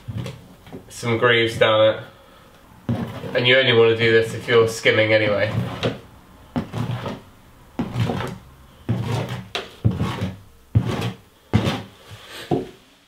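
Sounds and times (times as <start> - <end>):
scraper scratching plaster: 2.9 - 6.0, 6.6 - 12.2.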